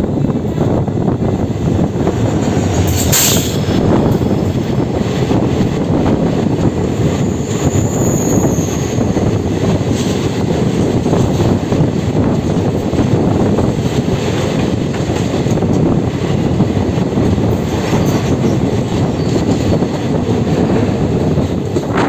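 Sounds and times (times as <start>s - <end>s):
rushing air: 0.0s - 22.0s
train wheels on rails rumbling: 0.0s - 22.0s
high wheel squeal: 7.2s - 9.5s.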